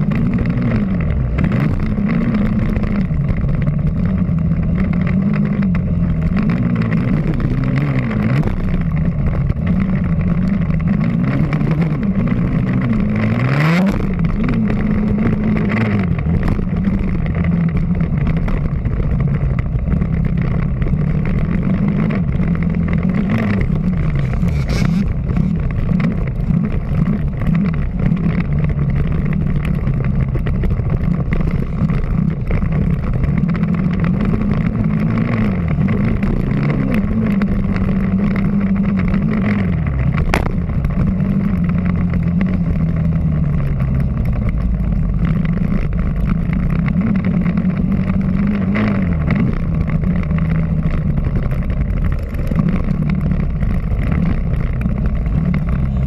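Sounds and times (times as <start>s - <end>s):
wind noise: 0.0s - 56.0s
dirt bike engine revving: 21.4s - 28.1s.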